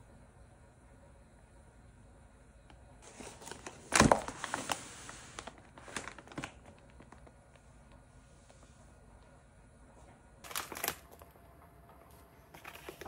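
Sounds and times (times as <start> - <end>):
plastic packaging crinkling: 3.0 - 7.4, 10.4 - 11.4, 12.1 - 13.0.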